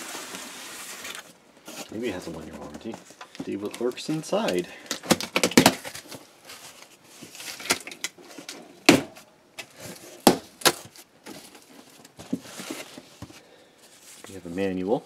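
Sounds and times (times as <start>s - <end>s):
cardboard rustling: 0.0s - 14.8s
cardboard box cracking: 4.9s - 6.2s.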